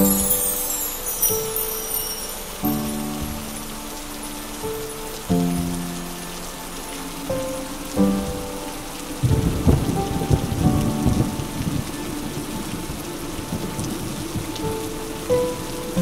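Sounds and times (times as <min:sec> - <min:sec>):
heavy rain: 0:00.0 - 0:16.0
thunder rumble: 0:08.0 - 0:16.0.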